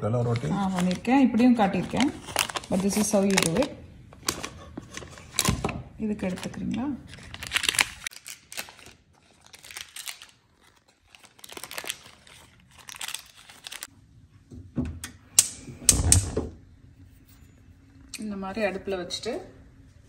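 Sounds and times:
butter wrappers crinkling and tearing: 0.2s - 5.6s, 6.2s - 13.9s.

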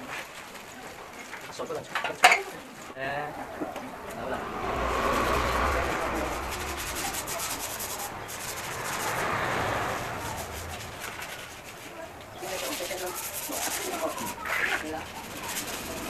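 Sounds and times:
sandpaper rubbing on plastic: 10.0s - 16.0s.

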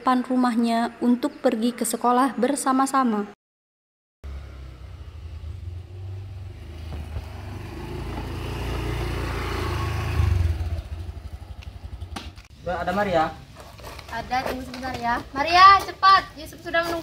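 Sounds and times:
motor scooter running: 4.3s - 12.4s.

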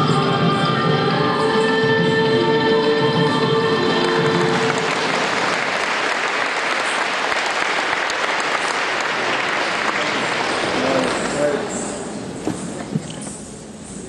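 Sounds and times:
dance music held notes: 0.0s - 5.6s
audience applauding: 3.9s - 11.7s.

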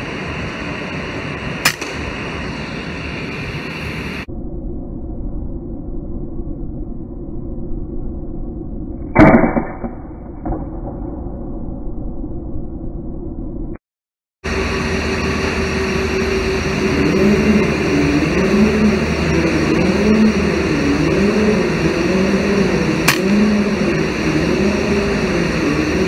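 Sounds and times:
machinery drone with wavering hum: 0.0s - 13.8s, 14.4s - 26.0s
air rifle shot: 1.6s - 2.2s, 9.2s - 10.0s.

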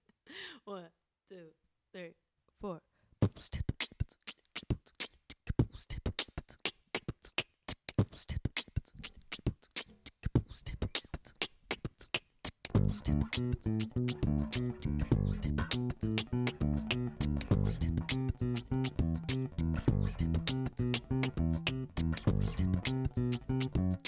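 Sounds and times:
beatboxing: 3.2s - 24.0s
bass guitar plucked notes: 12.8s - 24.0s.

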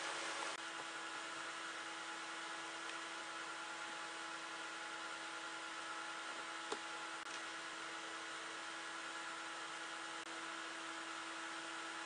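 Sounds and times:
computer cooling fans whirring: 0.0s - 12.0s.

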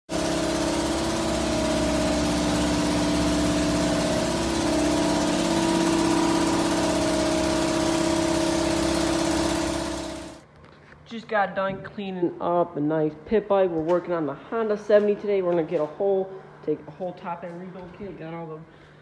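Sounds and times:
small engine idling: 0.0s - 10.4s.

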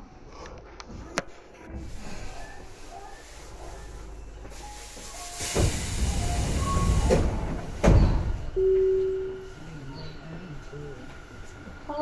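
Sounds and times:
train doors hissing: 1.7s - 11.5s
steady tone: 8.6s - 11.0s.

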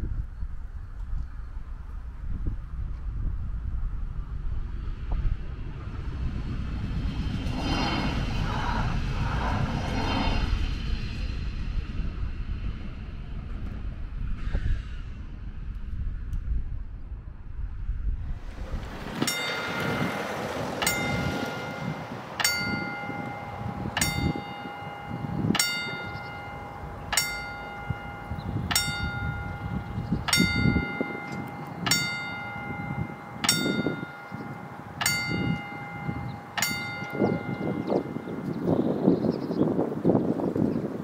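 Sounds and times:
wind rumble on microphone: 0.0s - 41.0s
level crossing warning bell: 18.7s - 39.1s.

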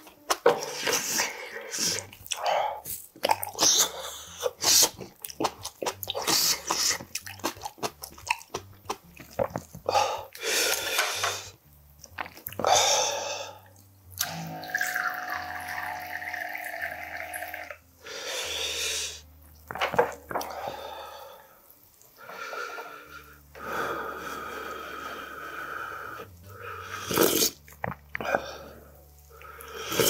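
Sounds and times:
eating and slurping: 0.0s - 11.5s, 24.2s - 30.0s
liquid pouring into cup: 14.3s - 17.8s.

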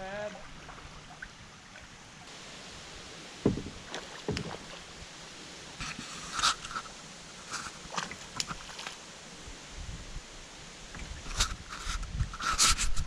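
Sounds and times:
flowing water: 0.0s - 12.9s
knocks on kayak hull: 3.4s - 4.6s
paddle clatter and splashes: 3.4s - 5.1s, 5.8s - 9.1s.

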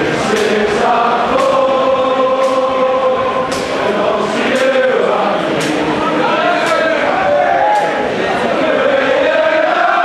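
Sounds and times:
football crowd chanting: 0.0s - 10.0s.

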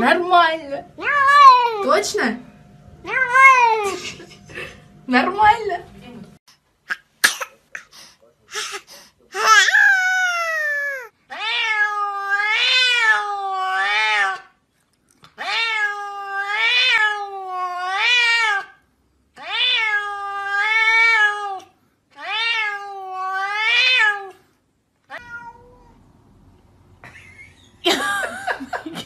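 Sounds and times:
cat meowing: 9.4s - 14.4s, 15.4s - 18.7s, 19.4s - 24.4s, 25.1s - 26.0s.

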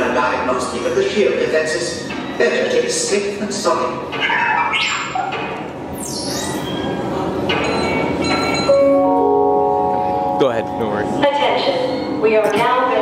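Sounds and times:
crowd noise: 0.0s - 13.0s
high swooping electronic whistle: 5.9s - 7.0s
electronic announcement chime: 6.0s - 11.2s.

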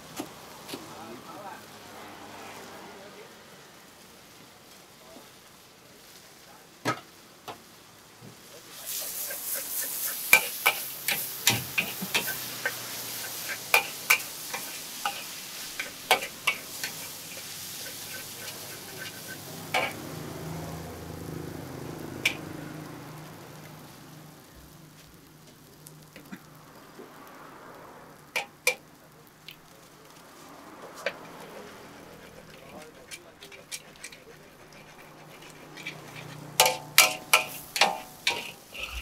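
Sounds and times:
food sizzling in a wok: 0.0s - 39.0s
metal spatula clanking on pan: 9.0s - 20.1s, 22.2s - 22.5s, 28.4s - 28.8s, 32.3s - 39.0s.

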